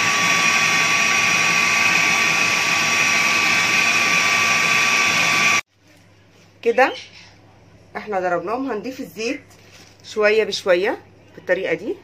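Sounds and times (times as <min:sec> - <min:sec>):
food processor motor whining: 0:00.0 - 0:05.6.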